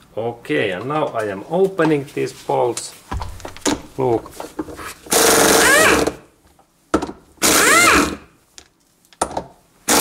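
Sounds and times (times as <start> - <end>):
pneumatic impact wrench: 5.1 - 6.2, 7.4 - 8.3.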